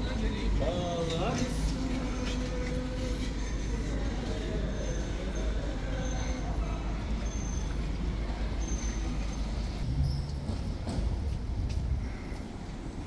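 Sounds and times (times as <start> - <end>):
traffic rumble: 0.0 - 13.0
faint high-pitched squeaks: 1.8 - 10.3.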